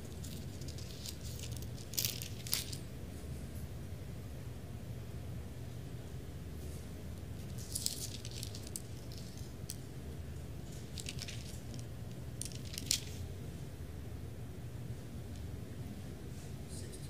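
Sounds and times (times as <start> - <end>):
thin pages rustling: 0.0 - 2.8, 7.4 - 9.5, 10.7 - 13.2
low room hum: 0.0 - 17.0.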